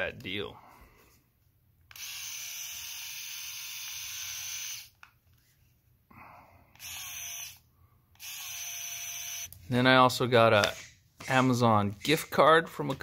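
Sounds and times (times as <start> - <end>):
electric shaver humming: 2.0 - 4.9, 6.8 - 7.6, 8.2 - 9.5.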